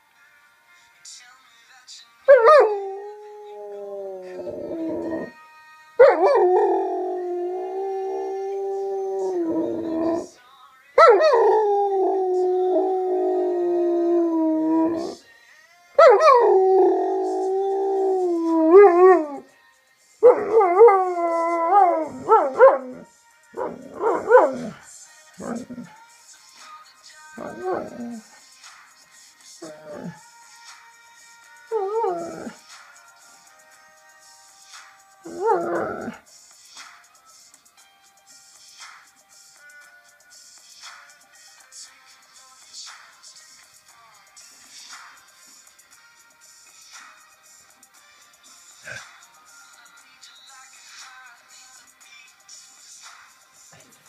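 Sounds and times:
music: 0:00.0 - 0:54.0
dog howling: 0:02.3 - 0:05.3, 0:06.0 - 0:10.3, 0:11.0 - 0:15.2, 0:16.0 - 0:19.4, 0:20.3 - 0:24.8, 0:25.4 - 0:25.9, 0:27.4 - 0:28.2, 0:29.6 - 0:30.2, 0:31.7 - 0:32.6, 0:35.3 - 0:36.2.

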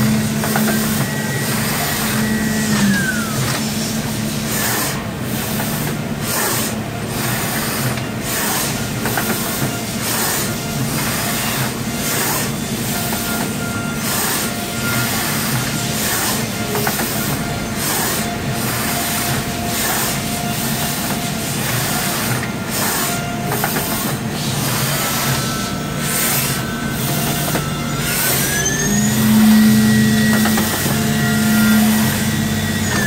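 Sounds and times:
spindle whine: 0:00.0 - 0:04.5, 0:24.1 - 0:33.0.

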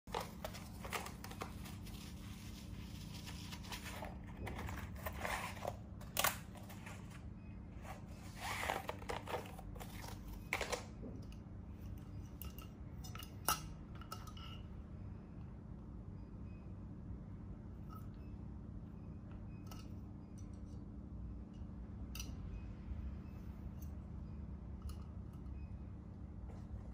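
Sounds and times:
paper rustling and crinkling: 0:00.1 - 0:07.2, 0:07.8 - 0:10.8.

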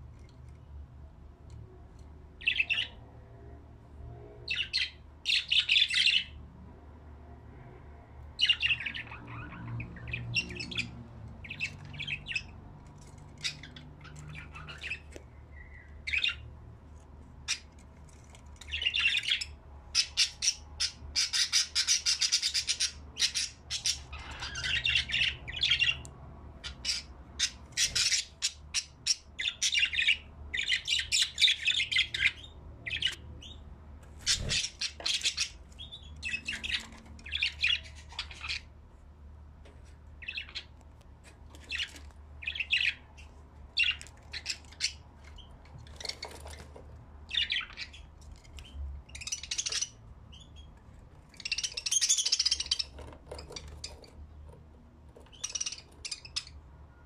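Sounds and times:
budgerigars chattering: 0:26.6 - 0:33.6, 0:34.3 - 0:38.7, 0:51.4 - 0:54.1, 0:55.3 - 0:56.6.

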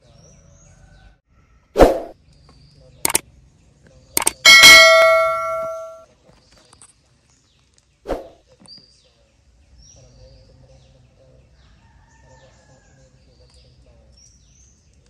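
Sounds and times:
notification bell ding: 0:04.2 - 0:06.0.

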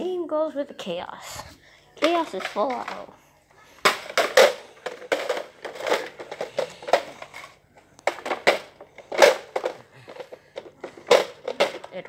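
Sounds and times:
hard plastic clacks and scrapes: 0:03.8 - 0:12.0.

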